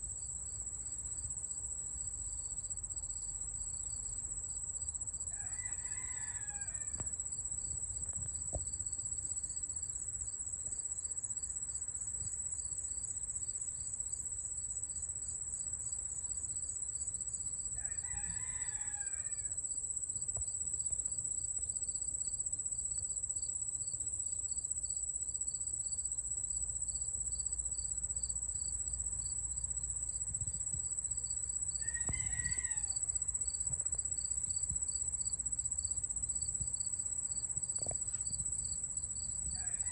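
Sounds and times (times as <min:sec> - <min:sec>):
high-pitched insect chorus: 0:16.4 - 0:39.9.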